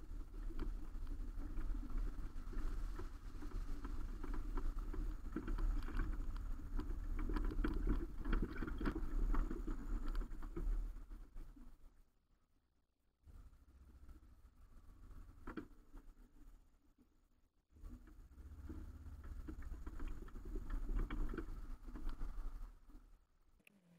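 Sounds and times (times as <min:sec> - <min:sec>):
car rumbling over gravel: 0:00.0 - 0:11.5, 0:17.8 - 0:23.2
knocks and rattles: 0:00.2 - 0:11.0.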